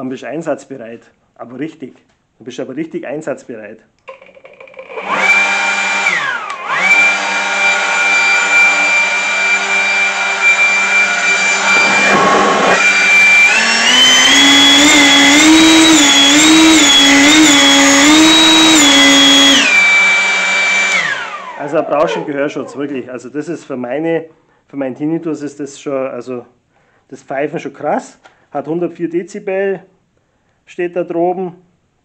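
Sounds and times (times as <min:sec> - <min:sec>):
leaf blower whining: 0:04.7 - 0:23.0.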